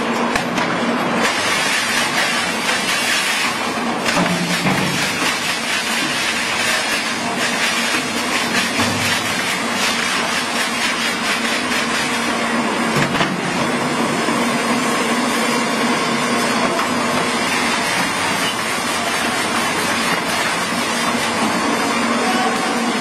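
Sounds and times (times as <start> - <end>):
wood crusher shredding wood: 0.0 - 23.0.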